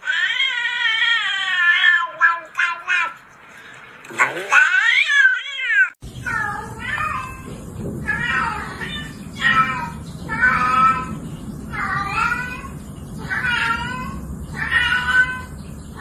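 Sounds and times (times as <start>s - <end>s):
cat meowing: 4.5s - 15.6s.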